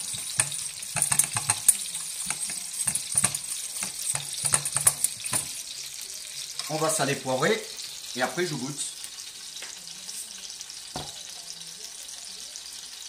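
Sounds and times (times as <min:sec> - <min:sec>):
whisk scraping a saucepan: 0:00.0 - 0:05.6
sizzling hiss: 0:00.0 - 0:13.0.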